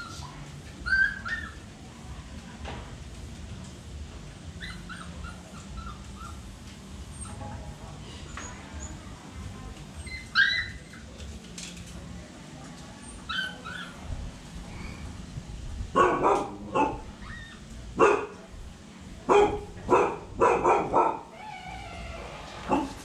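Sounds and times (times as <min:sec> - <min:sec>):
dog barking: 0:16.0 - 0:17.1, 0:18.0 - 0:18.4, 0:19.3 - 0:21.3, 0:22.7 - 0:23.0.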